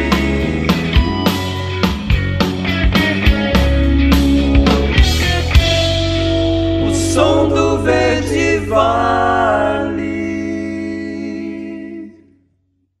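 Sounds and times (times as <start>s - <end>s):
voices singing over rock chord: 0.0s - 2.8s, 4.4s - 12.2s.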